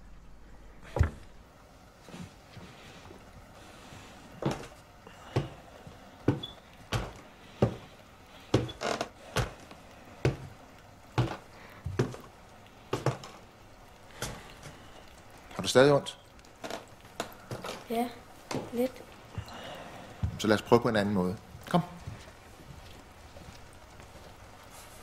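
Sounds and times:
footsteps on wooden stairs: 0:00.8 - 0:01.4, 0:04.3 - 0:13.5, 0:16.6 - 0:20.5, 0:21.4 - 0:24.3.

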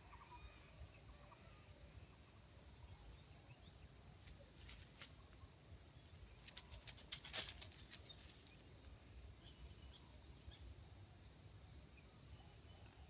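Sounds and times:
dry leaves crackling: 0:04.5 - 0:05.2, 0:06.4 - 0:08.7.

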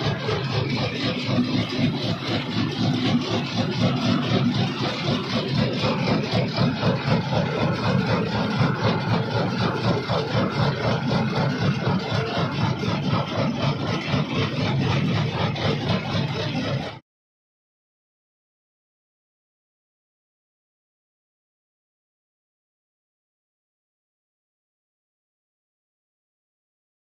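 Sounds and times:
jaw crusher running: 0:00.0 - 0:17.0.

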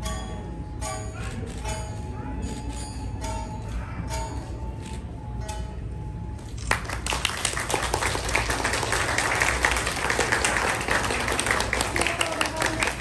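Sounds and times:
faint held music tones: 0:00.0 - 0:06.6
audience applause: 0:06.6 - 0:13.0.

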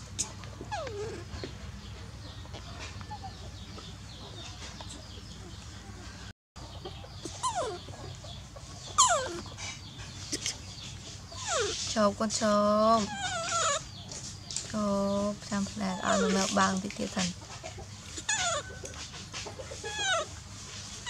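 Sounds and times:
baby monkey screaming: 0:07.2 - 0:07.8, 0:08.9 - 0:09.5, 0:12.9 - 0:14.0, 0:15.8 - 0:16.6, 0:18.1 - 0:19.0, 0:19.8 - 0:20.4.

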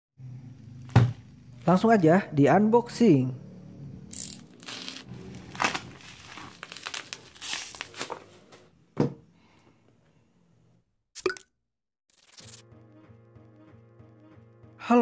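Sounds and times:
plastic wrap tearing and crinkling: 0:04.5 - 0:08.5.

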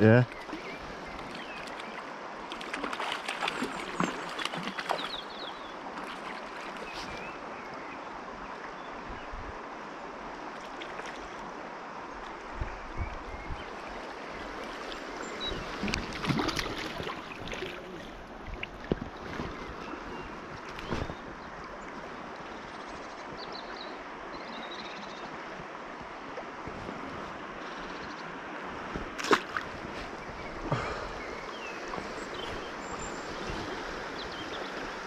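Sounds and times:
river water rushing: 0:00.0 - 0:08.7, 0:13.7 - 0:20.6, 0:23.6 - 0:35.0
water splashing: 0:00.3 - 0:07.3, 0:14.6 - 0:19.7, 0:29.0 - 0:35.0.

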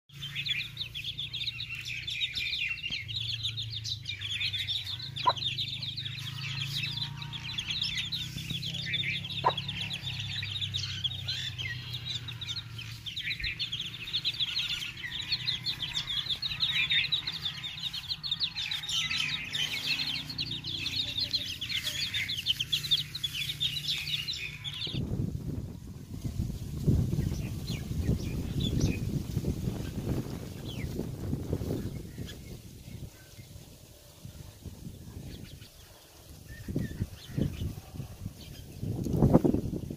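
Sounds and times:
chicks peeping: 0:00.1 - 0:33.6
hen clucking: 0:04.7 - 0:18.0.

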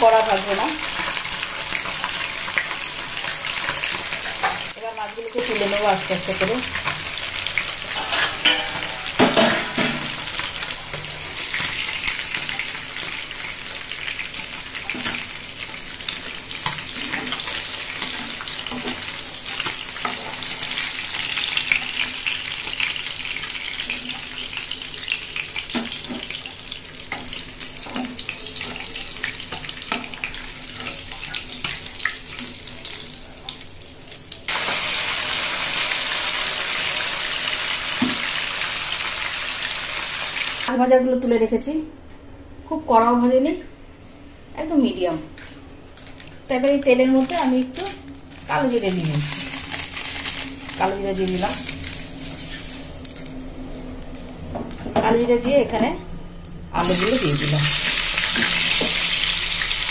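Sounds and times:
fish frying in hot oil: 0:00.0 - 0:09.2, 0:10.0 - 0:40.7, 0:48.6 - 0:53.3, 0:56.8 - 0:59.9.

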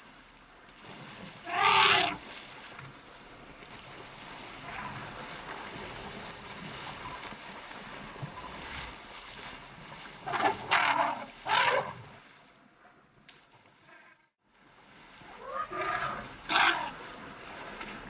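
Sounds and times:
water splashing and sloshing: 0:00.0 - 0:18.0.

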